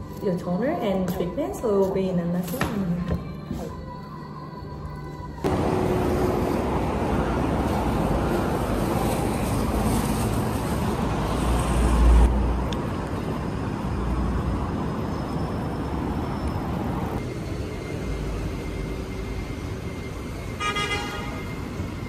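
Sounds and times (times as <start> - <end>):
road traffic: 5.3 - 22.0
horn toot: 20.6 - 21.5.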